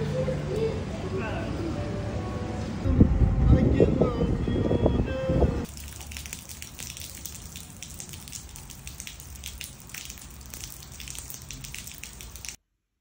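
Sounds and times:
drips and splashes: 5.7 - 12.6
rain pouring on paving: 5.7 - 12.6.

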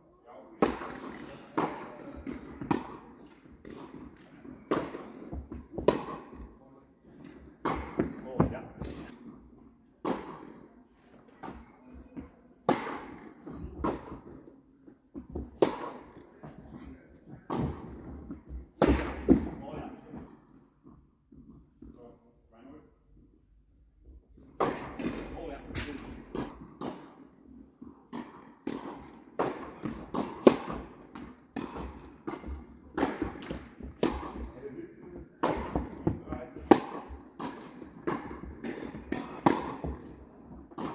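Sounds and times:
tennis ball hits echoing: 0.6 - 6.5, 28.1 - 34.6, 35.4 - 40.9.

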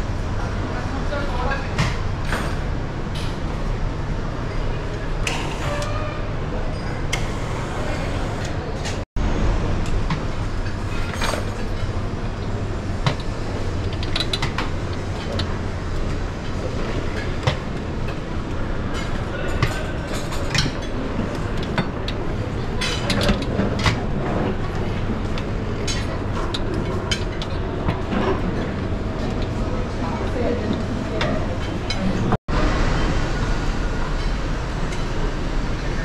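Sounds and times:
background chatter: 4.3 - 9.0, 15.1 - 32.9.

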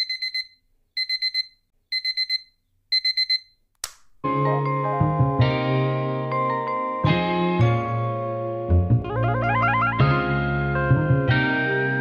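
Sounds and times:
alarm clock beeping: 0.0 - 3.5
music with chords and bass: 4.3 - 12.0.

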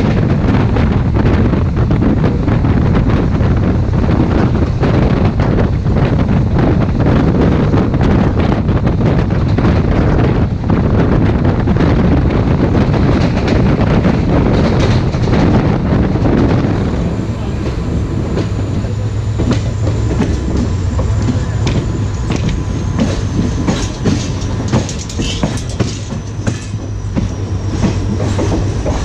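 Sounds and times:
train rumbling on track: 0.0 - 29.0
wind: 0.0 - 29.0
rail-joint clicks: 12.8 - 17.0, 17.6 - 29.0.

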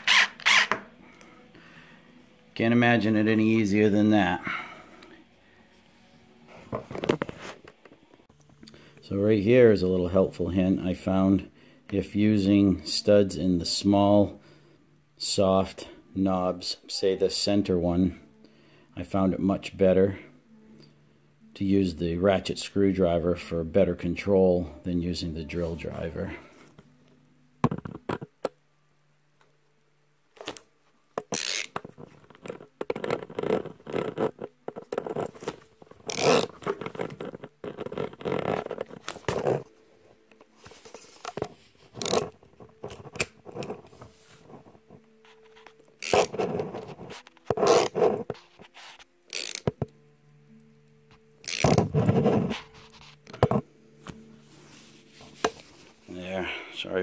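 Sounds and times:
ratchet screwdriver clicking: 31.3 - 31.8, 36.1 - 36.5, 42.0 - 42.3, 46.0 - 46.3, 47.6 - 47.9, 49.3 - 49.8, 51.5 - 51.8.

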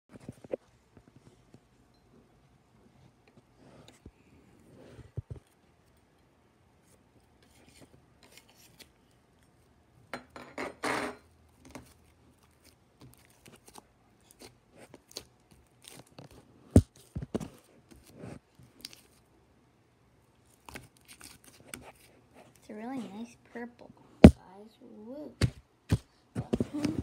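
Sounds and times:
slime squelch: 11.5 - 19.3.

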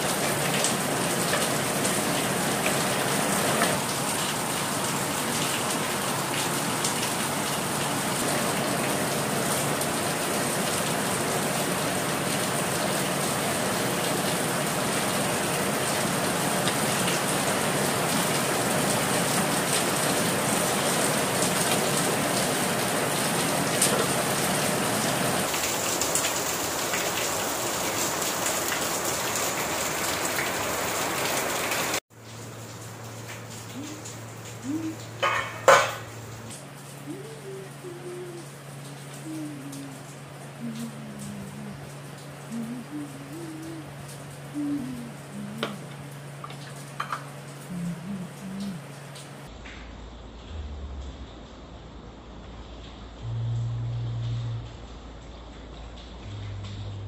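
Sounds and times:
low hum: 47.6 - 57.0.

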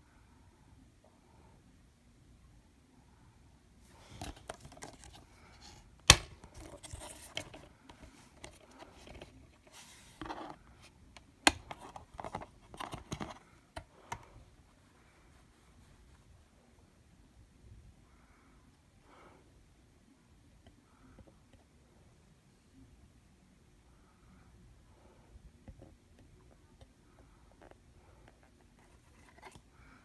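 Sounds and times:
plastic case rustling and scraping: 3.9 - 14.2, 28.3 - 29.6.

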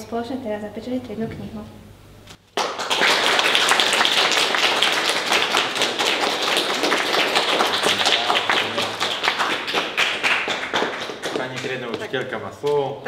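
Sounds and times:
people clapping: 2.5 - 12.8.

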